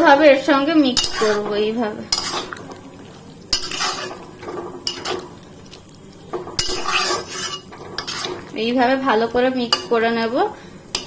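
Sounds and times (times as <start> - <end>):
metal spatula scraping a metal pan: 1.0 - 2.6, 3.5 - 5.3, 6.5 - 8.6.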